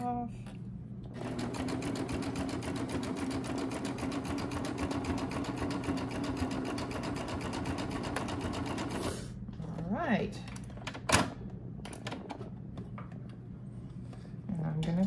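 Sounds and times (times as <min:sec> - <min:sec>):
serger sewing machine ticking: 0:01.2 - 0:09.0.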